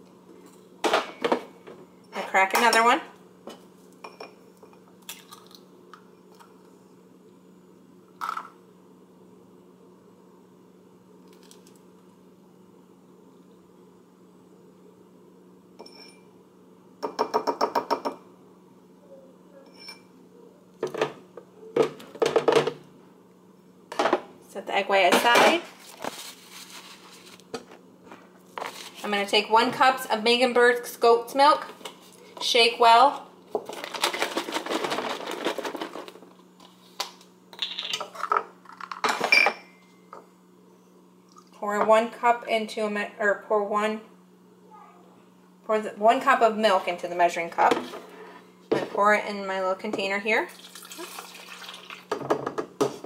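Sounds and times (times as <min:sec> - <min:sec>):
faint ringing clinks: 0:15.8 - 0:16.3
kitchen items knocking on countertop: 0:21.8 - 0:22.8, 0:52.1 - 0:53.0.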